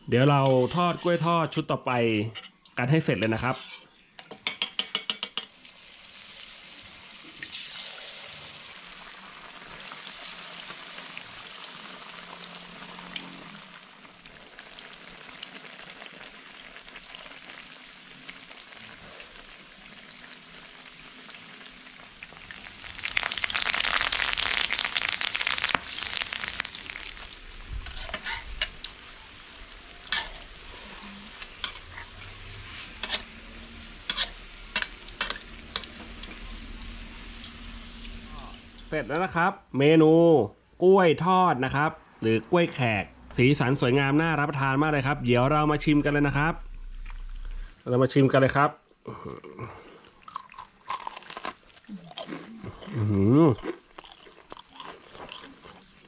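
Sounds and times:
oil sizzling and crackling: 2.5 - 39.4, 43.6 - 49.0, 53.0 - 56.0
metal spatula knocking on wok: 4.4 - 5.5.

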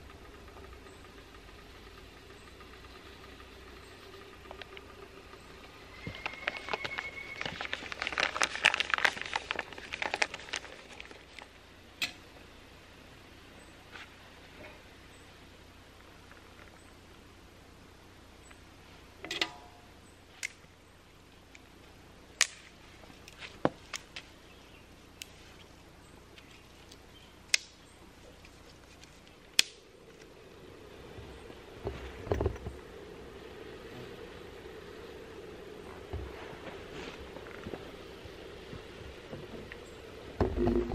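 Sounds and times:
rustling: 3.2 - 11.6, 25.2 - 40.9
close crackling and crinkling: 4.0 - 12.1, 21.4 - 33.0
dry stick snapping: 20.4 - 20.6, 22.4 - 24.3, 26.4 - 27.8, 28.4 - 30.3
low thumps: 40.4 - 40.9.

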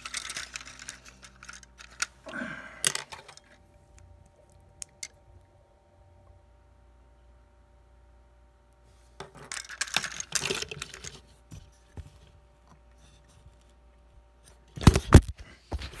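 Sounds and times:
plastic toy parts rustling and clicking: 0.0 - 5.2, 9.2 - 13.8.

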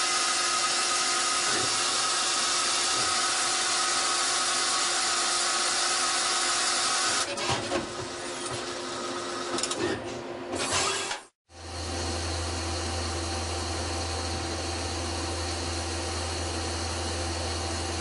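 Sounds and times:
lathe running: 0.0 - 7.3.

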